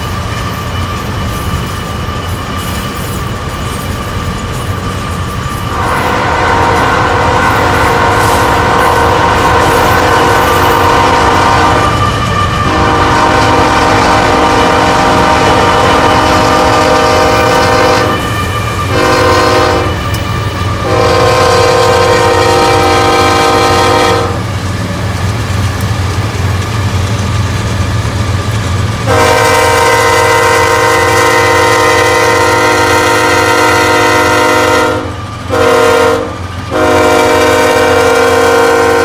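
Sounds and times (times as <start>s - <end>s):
train rumble: 0.0s - 39.0s
locomotive air horn blasts: 5.7s - 20.1s, 20.8s - 24.4s, 29.0s - 39.0s.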